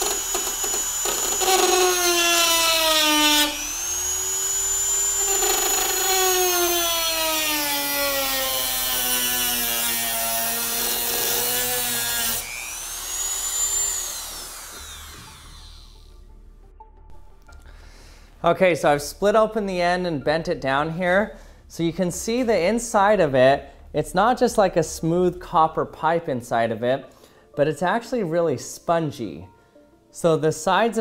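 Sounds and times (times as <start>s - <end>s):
rotary tool cutting copper pipe: 0.0s - 16.1s.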